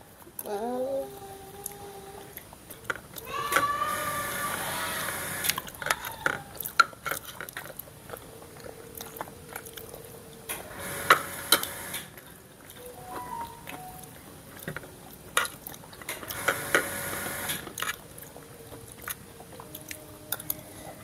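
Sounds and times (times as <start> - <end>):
chewing: 1.1 - 3.5, 5.4 - 10.6, 12.1 - 16.7, 17.6 - 21.0.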